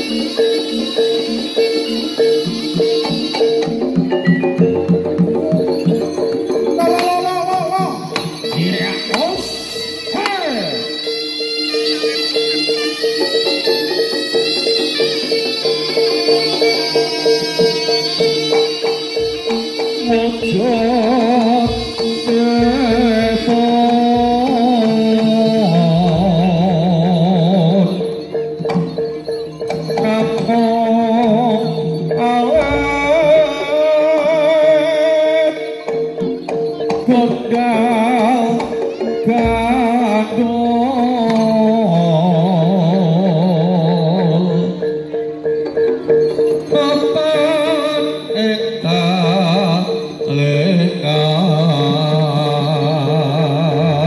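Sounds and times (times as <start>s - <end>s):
held tone: 0.0s - 12.2s
wavering ornamented melody: 0.0s - 54.0s
drum strokes: 1.2s - 11.0s, 17.4s - 34.6s.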